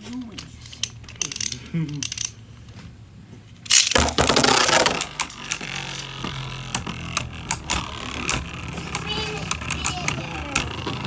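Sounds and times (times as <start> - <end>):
spinning tops clicking: 3.6 - 11.0
spinning tops scraping and clacking: 3.6 - 11.0.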